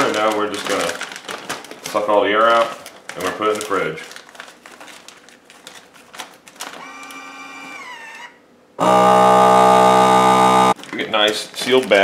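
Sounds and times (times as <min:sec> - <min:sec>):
plastic bag rustling: 0:00.0 - 0:06.9, 0:10.8 - 0:12.0
vacuum pump running: 0:06.7 - 0:10.8
short motor whir: 0:06.8 - 0:10.8.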